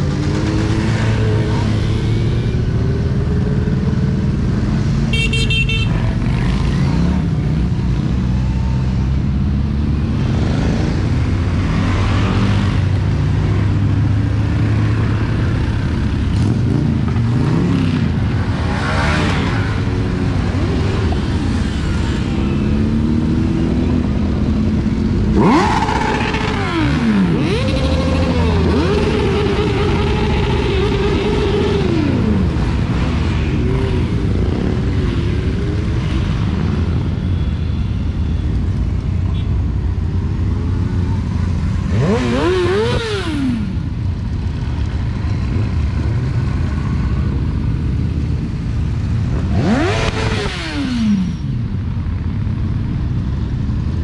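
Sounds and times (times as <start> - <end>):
motorcycle engines revving: 0.0 - 54.0
motorcycle passing close: 9.6 - 36.7, 40.8 - 44.0, 49.2 - 52.4.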